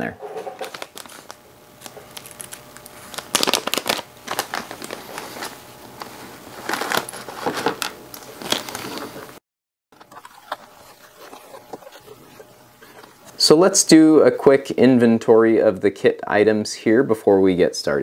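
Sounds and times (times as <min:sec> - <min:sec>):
plastic bag crinkling: 0:00.5 - 0:09.4, 0:10.0 - 0:13.5.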